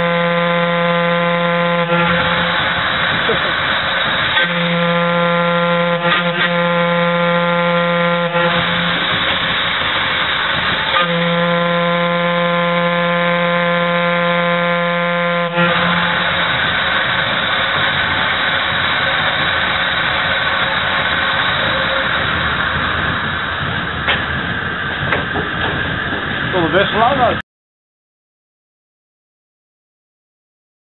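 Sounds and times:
steam whistle blasts: 0.0s - 22.9s
steady rushing steam hiss: 1.6s - 11.5s, 15.5s - 27.4s.

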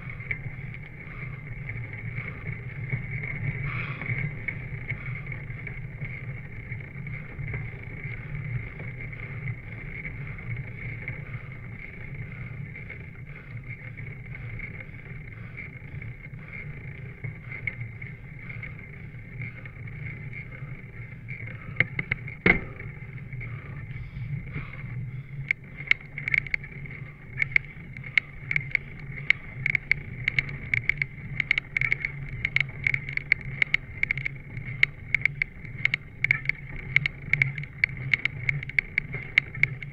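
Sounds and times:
bicycle tyres humming on asphalt: 0.0s - 39.9s
sharp clicks and rattles: 0.0s - 39.9s.

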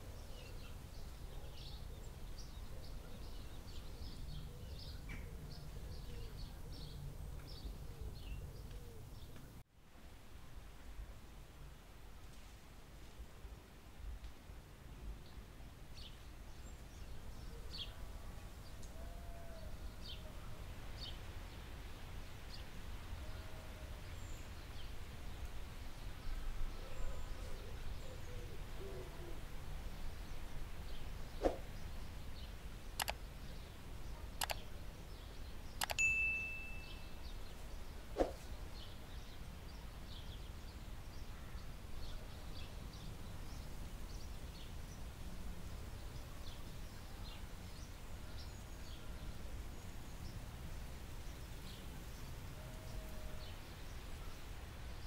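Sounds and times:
sharp clicks: 33.0s - 33.2s, 34.4s - 34.6s, 35.8s - 36.1s
faint bird chirps: 34.1s - 39.0s
brief high tone: 35.9s - 37.2s.

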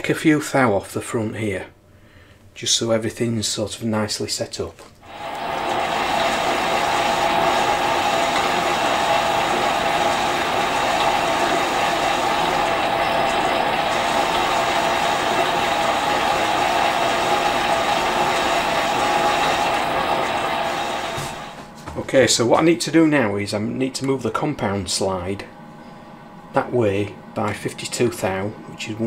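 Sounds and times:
metal lathe cutting: 5.1s - 21.6s.

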